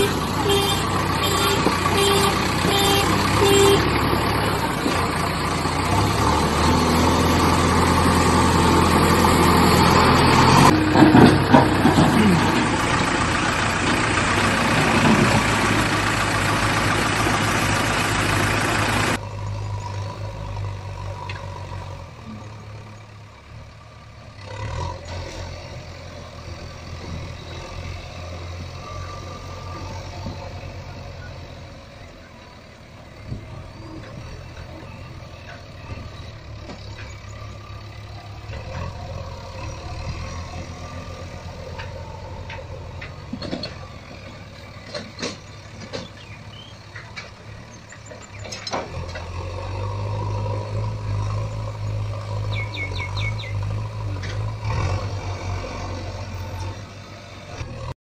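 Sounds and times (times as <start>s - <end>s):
low motor hum: 0.0s - 57.9s
sharp clicks and knocks: 44.8s - 46.2s, 46.9s - 49.4s.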